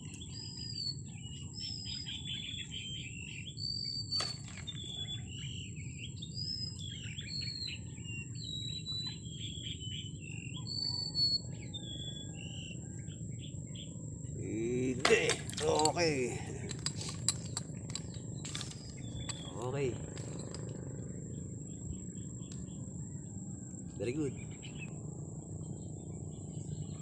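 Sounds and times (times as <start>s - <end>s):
birds singing: 0.0s - 27.0s
low background rumble: 11.4s - 27.0s.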